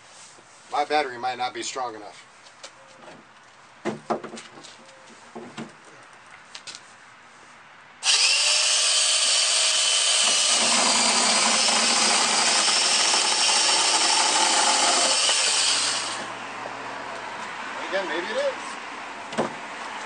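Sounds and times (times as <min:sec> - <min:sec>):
chainsaw sawing into branch: 0:08.0 - 0:16.3
small chainsaw whining: 0:08.0 - 0:16.3.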